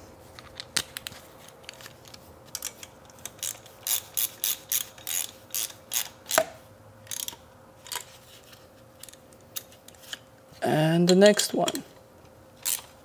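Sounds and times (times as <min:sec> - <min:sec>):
ratchet wrench clicking: 0:03.3 - 0:06.4, 0:07.0 - 0:07.4, 0:12.6 - 0:12.9.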